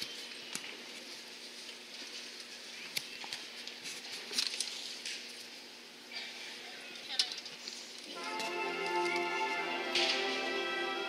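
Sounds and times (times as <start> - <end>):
low steady hum: 4.7 - 11.0
faint audience rustling: 7.6 - 11.0.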